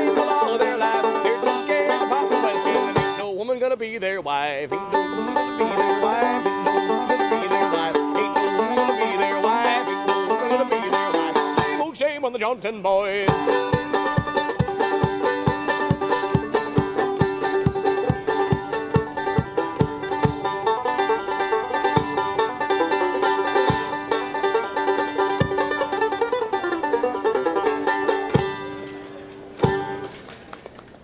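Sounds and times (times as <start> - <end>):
banjo picked quickly: 0.0 - 3.4, 4.6 - 12.0, 13.2 - 30.2
low thumps keeping time: 13.3 - 28.7.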